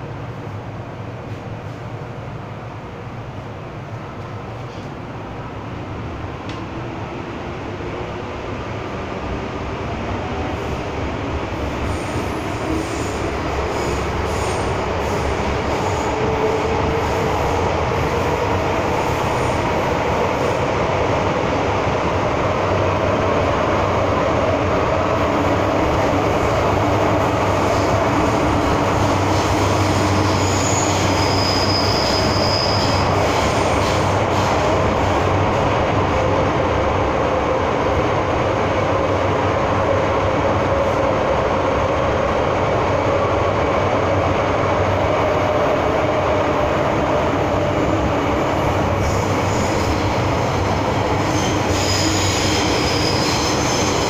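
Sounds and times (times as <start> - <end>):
train wheels rumbling: 6.2 - 54.0
high-pitched wheel squeal: 29.3 - 33.5, 51.2 - 54.0.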